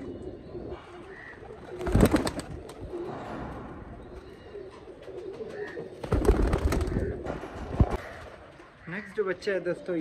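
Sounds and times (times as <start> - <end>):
pigeons cooing softly: 0.0 - 10.0
flurry of wingbeats: 1.8 - 2.7, 6.0 - 7.1.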